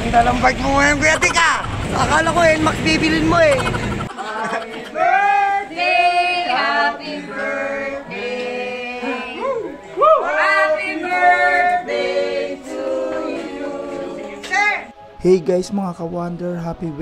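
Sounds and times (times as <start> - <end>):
music with singing voices: 4.1 - 15.6.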